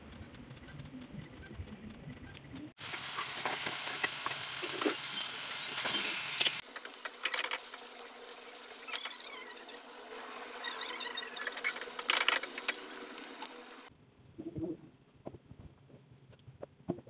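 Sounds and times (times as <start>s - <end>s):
fish sizzling in oil: 2.8s - 13.9s.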